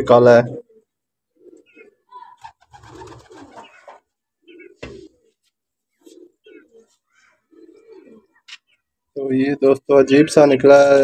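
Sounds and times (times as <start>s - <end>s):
pigeons cooing: 0.4s - 9.0s.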